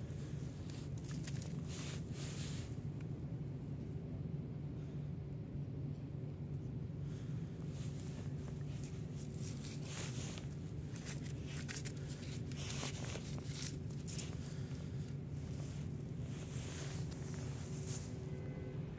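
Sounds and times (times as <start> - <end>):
steady low hum: 0.0 - 18.9
potatoes rustling and knocking: 8.2 - 18.0.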